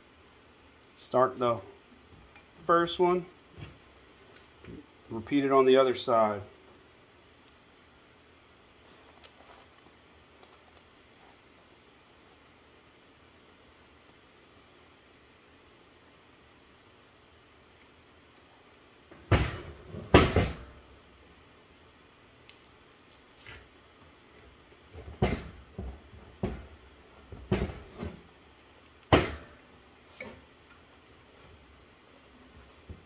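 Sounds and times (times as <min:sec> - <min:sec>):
tools knocking on wooden workbench: 0:27.3 - 0:28.2.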